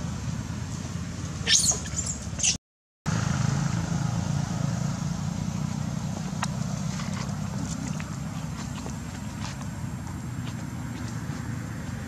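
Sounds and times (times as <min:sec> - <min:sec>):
baby monkeys squealing: 0:01.4 - 0:02.6.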